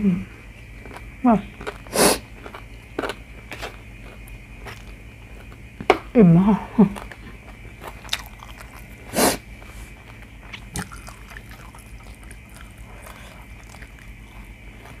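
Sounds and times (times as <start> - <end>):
low room hum: 0.0 - 15.0
loud puff of breath: 9.1 - 9.4.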